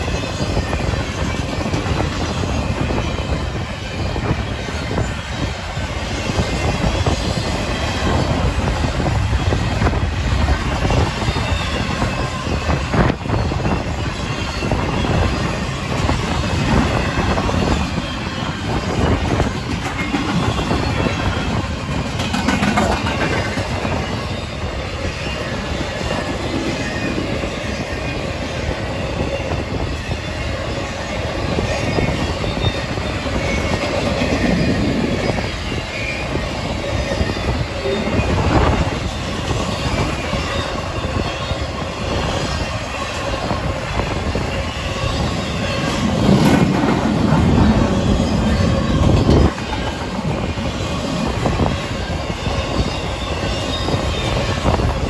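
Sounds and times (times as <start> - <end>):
wheels squealing on rails: 0.0 - 55.0
wind buffeting microphone: 0.0 - 55.0
train wheels clacking over rail joints: 14.5 - 24.3, 42.5 - 52.2.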